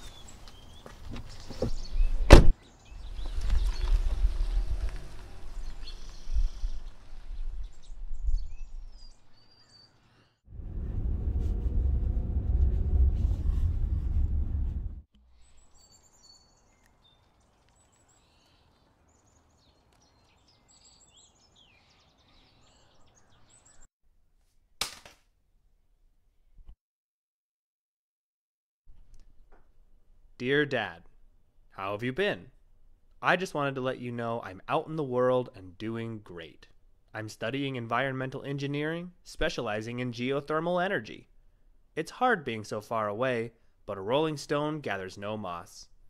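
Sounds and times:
birds chirping: 0.0s - 10.4s, 15.4s - 23.9s
car driving away: 10.5s - 15.0s
steady low rumble: 10.5s - 15.1s.

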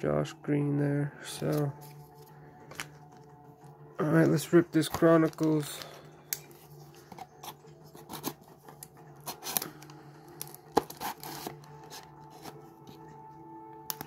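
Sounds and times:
cardboard scratching and tearing: 7.3s - 8.5s, 10.7s - 12.6s.

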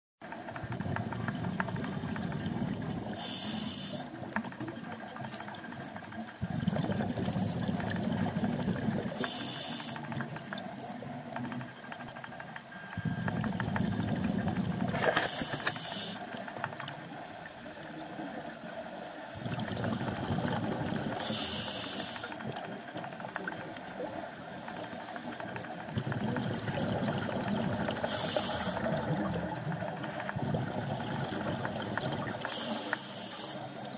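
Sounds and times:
bubbling exhaust underwater: 0.3s - 33.9s
regulator inhalation hiss: 3.2s - 4.2s, 9.2s - 10.1s, 15.1s - 16.3s, 21.2s - 22.4s, 28.0s - 28.9s, 32.4s - 33.9s.

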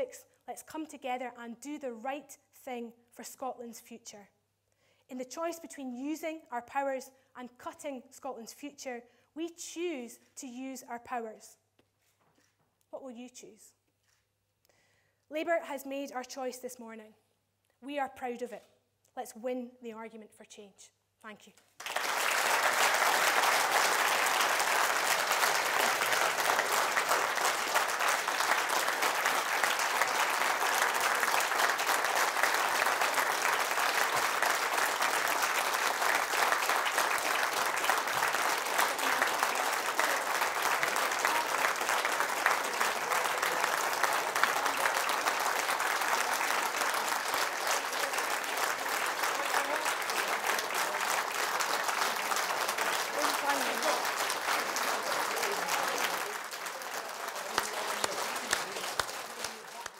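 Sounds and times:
audience applauding: 21.8s - 59.9s.

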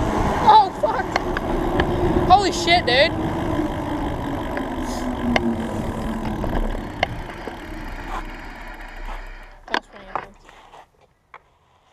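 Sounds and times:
wind rushing: 0.0s - 9.4s
rolling road noise: 0.0s - 10.8s.

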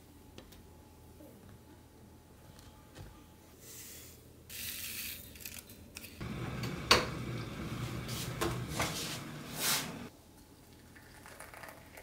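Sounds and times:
electric kettle heating water: 6.2s - 10.1s.

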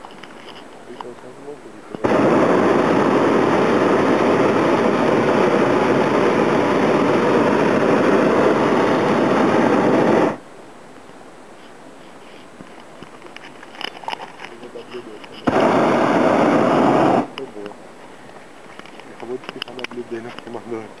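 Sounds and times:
propane burner blast: 1.9s - 10.4s, 15.3s - 17.6s.

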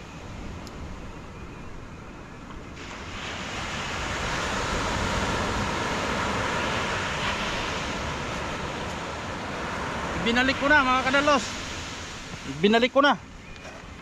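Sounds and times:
sea surf washing ashore: 0.0s - 14.0s.

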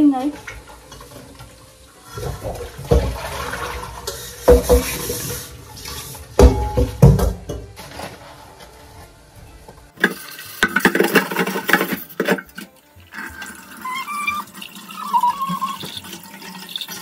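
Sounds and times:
tap water running into sink: 0.2s - 7.6s, 10.0s - 17.0s
metal dishes clattering: 2.2s - 8.2s, 10.0s - 12.7s.

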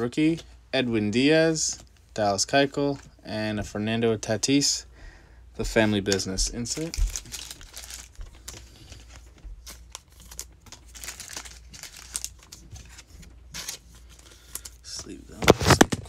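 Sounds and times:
plastic and foil packaging crinkling: 6.1s - 16.0s.

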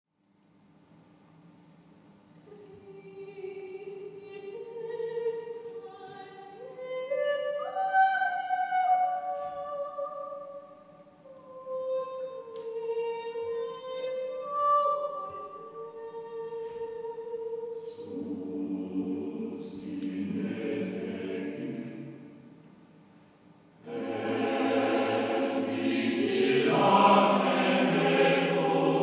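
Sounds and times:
faint low hum: 0.2s - 29.0s.

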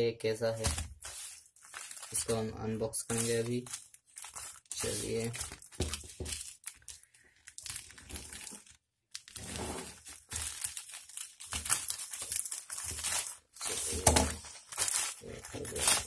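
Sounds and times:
plastic mailer crinkling: 0.4s - 16.0s
scissors cutting plastic: 9.2s - 16.0s.

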